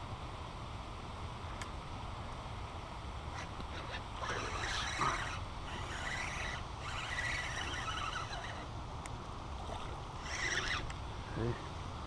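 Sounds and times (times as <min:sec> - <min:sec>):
fishing reel whirring: 0:03.4 - 0:08.8, 0:09.5 - 0:11.0.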